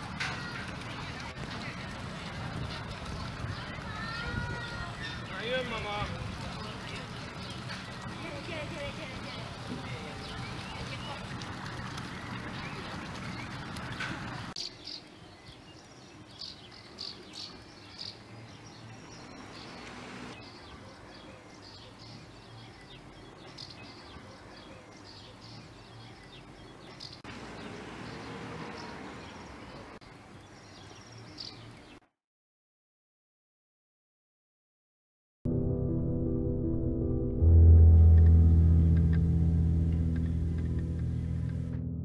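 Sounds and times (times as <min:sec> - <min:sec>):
faint outdoor background: 0:00.0 - 0:32.2, 0:35.5 - 0:42.0
small birds chirping: 0:00.4 - 0:32.1.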